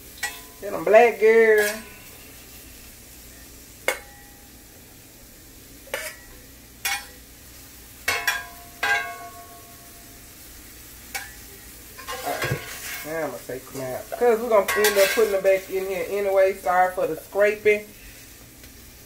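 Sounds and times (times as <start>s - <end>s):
metal utensils clinking on skillet: 0.0s - 2.6s, 3.8s - 4.6s, 5.8s - 7.3s, 8.0s - 10.0s, 11.1s - 17.8s
faint steady hiss: 0.0s - 19.0s.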